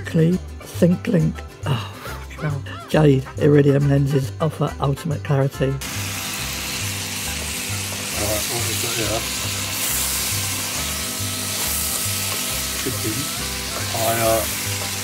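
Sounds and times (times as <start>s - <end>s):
food sizzling in a pan: 5.8s - 15.0s.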